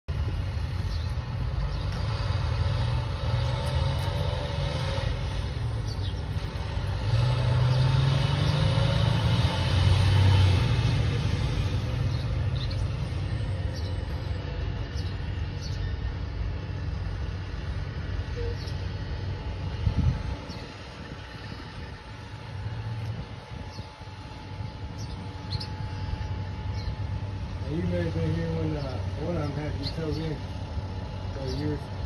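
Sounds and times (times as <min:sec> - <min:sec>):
diesel truck engine rumbling: 0:00.1 - 0:32.0.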